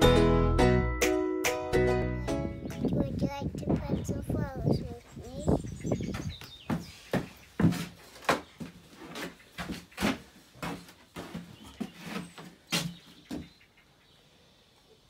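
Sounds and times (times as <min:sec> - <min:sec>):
light knocks and scuffs: 0:06.0 - 0:13.6.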